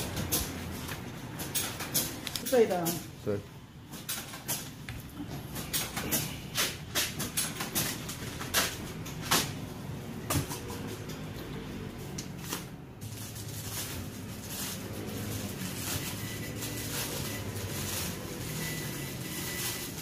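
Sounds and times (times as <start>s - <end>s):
paper and small items clicking: 0.0s - 3.0s.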